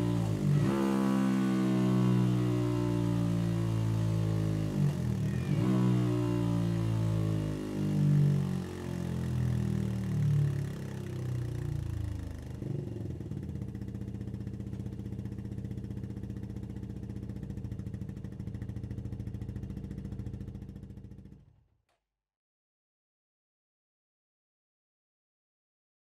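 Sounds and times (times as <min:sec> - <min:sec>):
motorcycle engine idling: 0:09.4 - 0:21.6.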